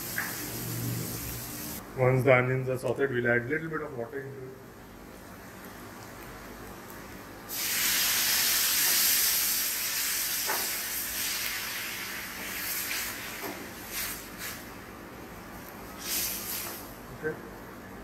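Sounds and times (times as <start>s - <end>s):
oil sizzling in a pan: 0.0s - 1.8s, 7.5s - 14.7s.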